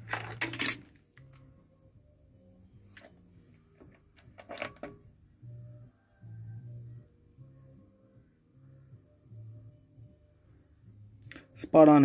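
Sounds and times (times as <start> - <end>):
equipment clicking and rattling: 0.0 - 0.9, 4.2 - 5.0
quiet background music: 0.0 - 12.0.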